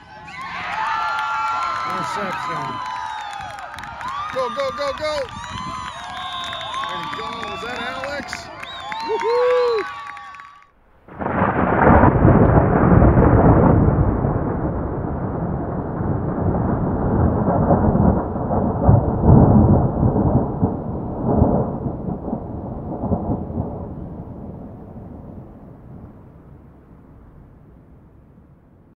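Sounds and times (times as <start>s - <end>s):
rolling thunder rumble: 10.9s - 28.9s.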